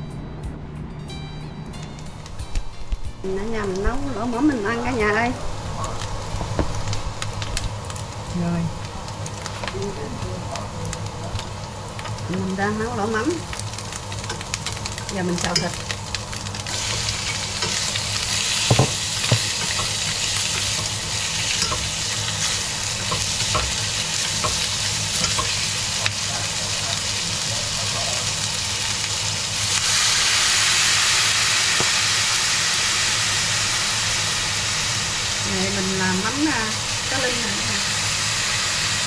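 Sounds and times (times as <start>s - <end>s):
broth hissing in hot pan: 3.3s - 39.0s
meat sizzling in a frying pan: 3.3s - 39.0s
utensils clinking against pan: 14.2s - 15.9s, 16.7s - 25.9s.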